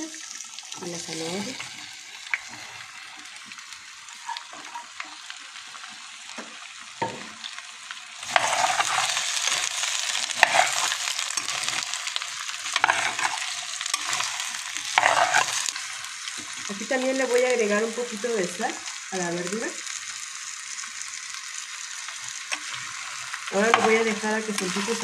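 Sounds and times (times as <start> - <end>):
vegetables sizzling in hot oil: 0.0 - 25.0
spoon stirring in clay pot: 8.3 - 9.2, 14.9 - 15.6.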